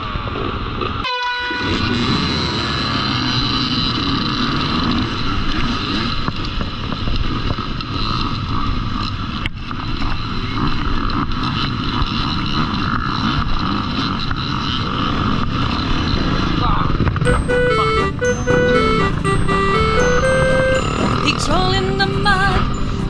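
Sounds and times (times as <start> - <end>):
dirt bike engines accelerating: 0.0 - 23.0
steady tone: 17.3 - 21.9.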